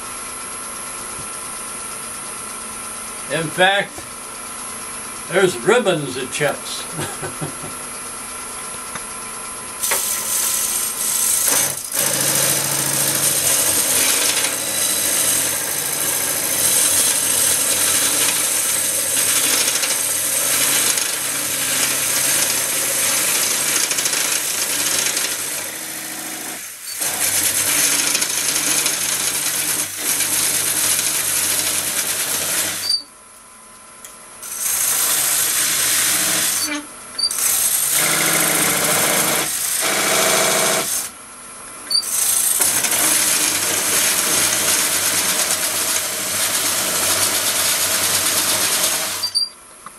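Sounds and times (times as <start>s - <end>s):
lathe hum: 7.6s - 32.8s, 34.4s - 36.6s, 37.3s - 41.2s, 42.0s - 49.3s
wood lathe cutting noise: 9.8s - 33.0s, 34.4s - 41.2s, 41.9s - 49.4s.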